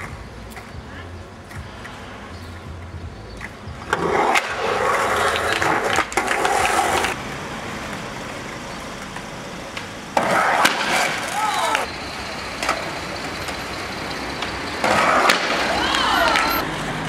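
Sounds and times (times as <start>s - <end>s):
skateboard wheels rolling on pavement: 0.0s - 17.0s
skateboard landing smack: 9.8s - 11.4s, 14.8s - 16.4s.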